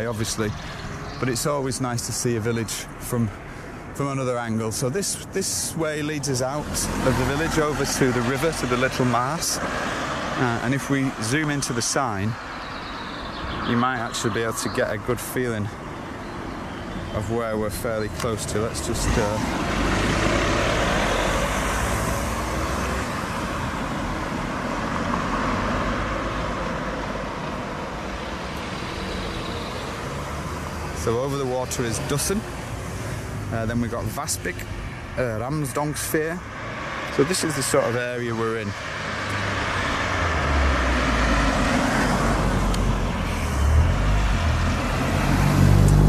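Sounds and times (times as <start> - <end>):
tyres hissing on road: 0.0 - 16.2, 27.4 - 46.0
car passing and driving off: 5.8 - 15.2, 16.4 - 46.0.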